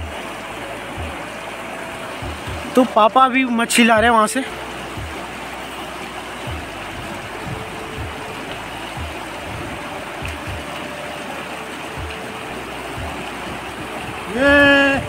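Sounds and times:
water rushing over rocks: 0.0s - 15.0s
low thumps: 1.0s - 1.4s, 2.1s - 2.9s, 4.8s - 5.5s, 6.4s - 10.7s, 11.9s - 12.3s.

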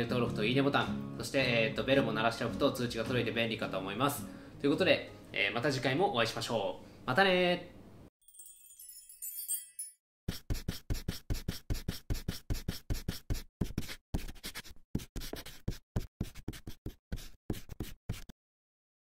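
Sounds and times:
chalk scratching on blackboard: 10.3s - 18.3s.

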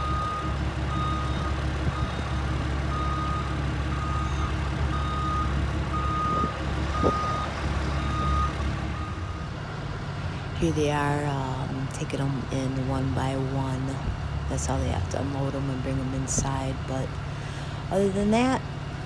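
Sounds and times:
reverse alarm beeping: 0.0s - 9.4s
diesel engine running: 0.0s - 19.0s.

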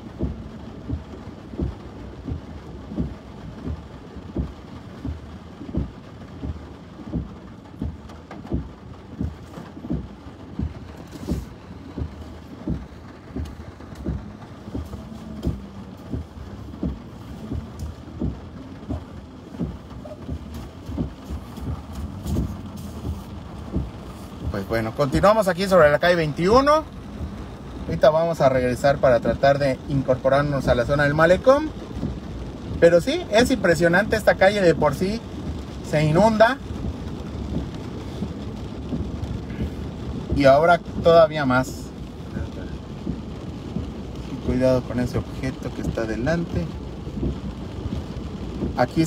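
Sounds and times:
car engine: 0.0s - 49.0s
water splashing under car: 0.0s - 49.0s
regular knocking: 0.2s - 24.8s.

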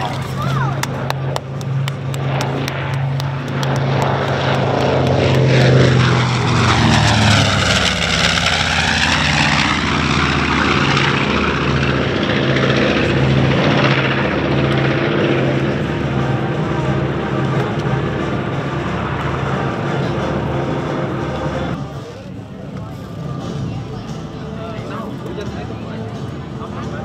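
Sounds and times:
plane whoosh passing by: 0.0s - 27.0s
propeller plane engines: 0.0s - 27.0s.

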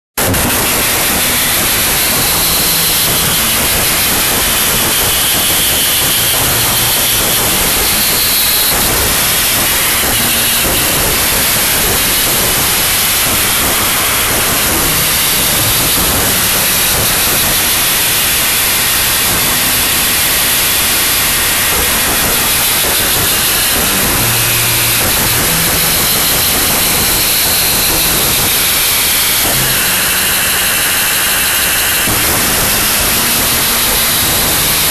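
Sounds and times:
dense static hiss: 0.2s - 34.9s.

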